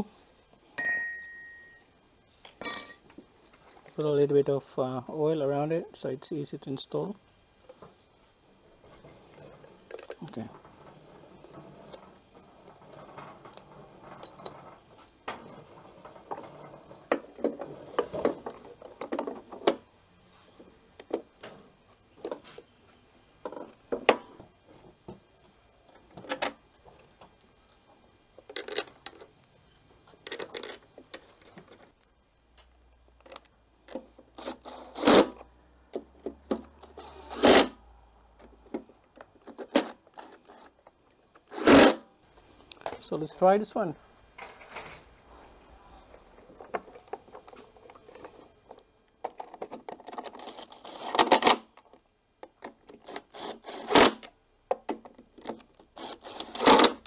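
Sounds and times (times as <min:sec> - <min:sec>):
cordless drill-driver bursts: 0:53.1 - 0:54.2, 0:56.0 - 0:57.0.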